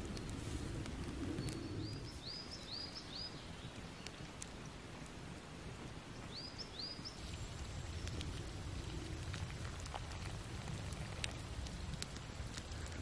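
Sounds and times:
campfire crackling and popping: 0:00.0 - 0:13.0
bird chirping: 0:01.4 - 0:04.1, 0:06.3 - 0:07.3.

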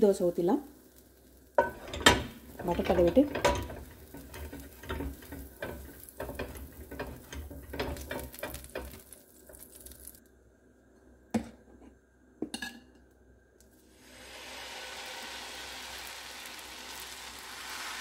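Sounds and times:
butter sizzling on hot griddle: 0:00.0 - 0:10.2, 0:13.8 - 0:18.0.

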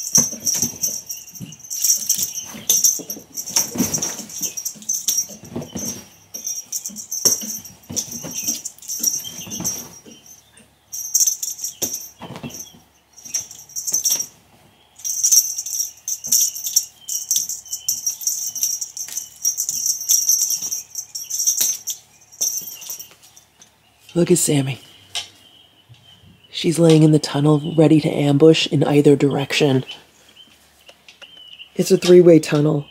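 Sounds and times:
bedsheet rustling: 0:00.0 - 0:10.4.

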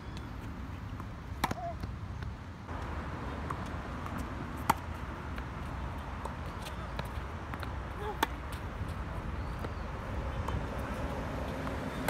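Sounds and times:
ball and shoes clicking on court: 0:00.1 - 0:12.0
tennis ball struck with racket: 0:03.4 - 0:05.0.

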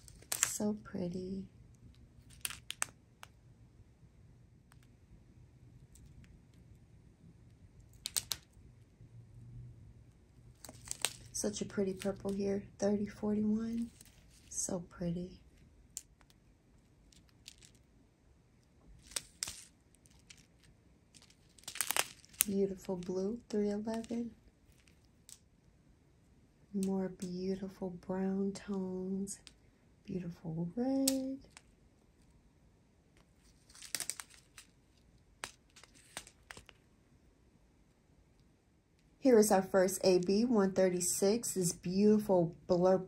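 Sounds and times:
small plastic beads clicking: 0:00.0 - 0:00.6, 0:01.9 - 0:03.4, 0:07.8 - 0:08.6, 0:10.6 - 0:12.3, 0:17.0 - 0:17.9, 0:19.0 - 0:23.1, 0:23.9 - 0:25.5, 0:33.7 - 0:36.8
plastic bags crinkling: 0:10.6 - 0:12.4, 0:19.0 - 0:25.4, 0:33.4 - 0:36.8.

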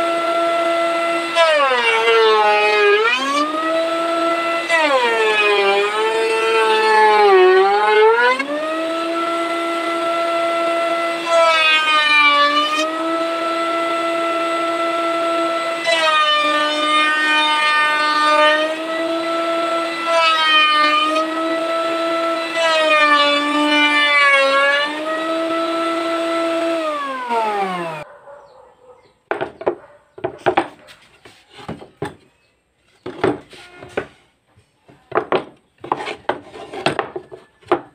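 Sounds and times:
electric router whining: 0:00.0 - 0:28.0.

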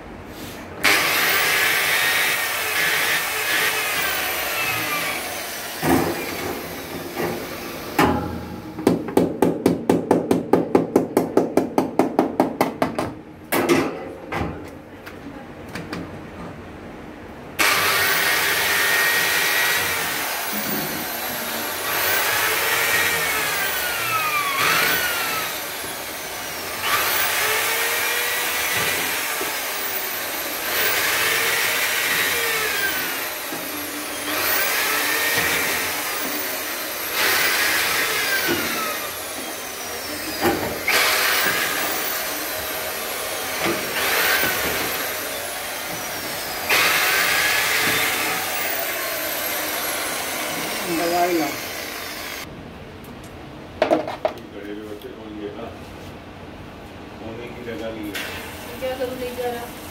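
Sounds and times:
electric drill whining: 0:00.8 - 0:08.0, 0:17.6 - 0:52.5.

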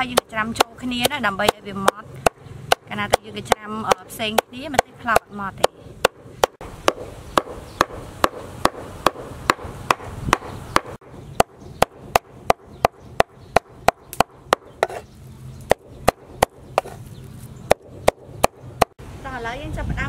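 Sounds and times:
knife chopping on wooden board: 0:00.0 - 0:15.1, 0:15.7 - 0:17.1.

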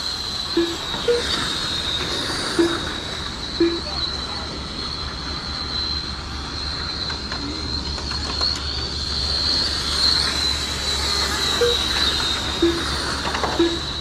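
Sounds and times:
toy race cars whining: 0:00.0 - 0:14.0
low steady hum: 0:00.5 - 0:04.4, 0:10.7 - 0:14.0.

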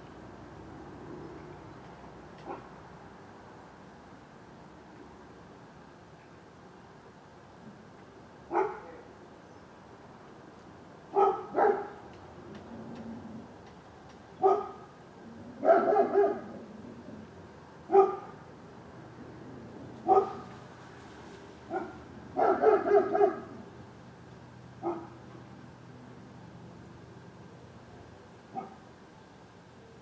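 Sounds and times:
dog barking: 0:02.4 - 0:02.7, 0:08.5 - 0:09.1, 0:11.1 - 0:12.0, 0:14.4 - 0:14.9, 0:15.6 - 0:16.5, 0:17.9 - 0:18.4, 0:20.0 - 0:20.5, 0:21.7 - 0:23.6, 0:24.8 - 0:25.2, 0:28.5 - 0:28.8.

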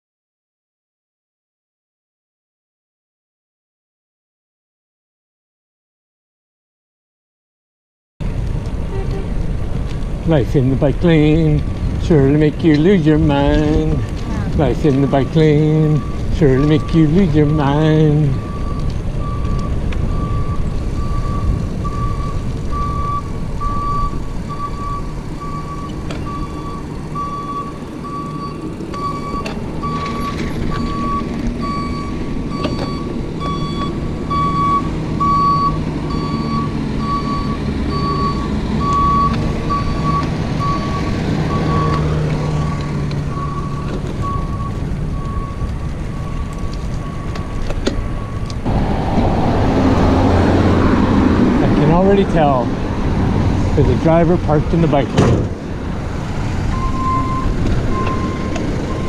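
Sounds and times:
truck engine rumbling: 0:08.2 - 0:59.0
truck reversing alarm beeping: 0:10.4 - 0:48.7, 0:56.6 - 0:59.0.

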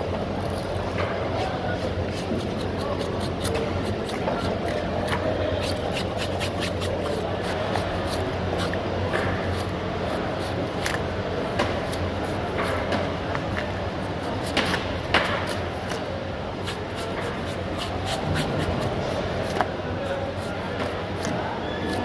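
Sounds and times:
low background hum: 0:00.0 - 0:22.0
knife scraping and slicing fish: 0:00.3 - 0:22.0.

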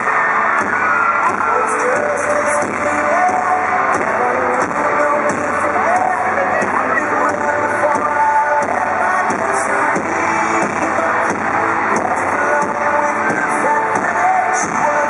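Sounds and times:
electric guitar: 0:00.0 - 0:15.0
live pop-rock band: 0:00.0 - 0:15.0
person singing melody: 0:01.5 - 0:15.0.

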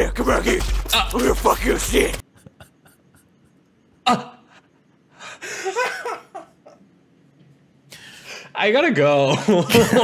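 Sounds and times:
hearty laughter: 0:02.2 - 0:03.7, 0:05.4 - 0:06.8, 0:09.3 - 0:10.0.

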